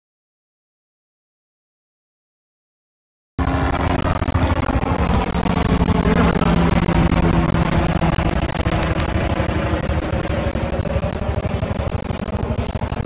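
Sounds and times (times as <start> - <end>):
helicopter engine and rotor drone: 3.4 - 13.0.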